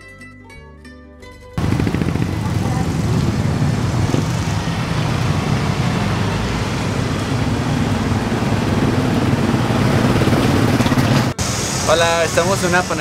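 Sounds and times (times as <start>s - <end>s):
motorcycles and scooters passing: 1.6s - 11.4s.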